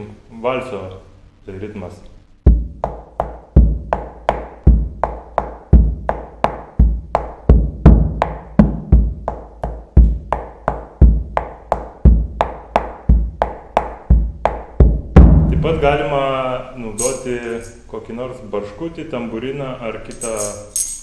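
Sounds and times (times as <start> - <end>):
deep bass drum stroke: 2.4 - 2.8, 14.1 - 16.2.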